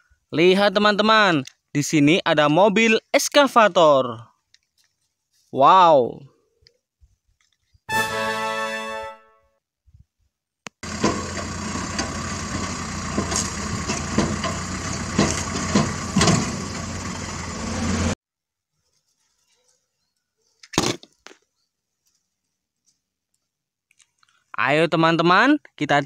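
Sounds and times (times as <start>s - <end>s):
excavator engine drone: 10.8s - 18.2s.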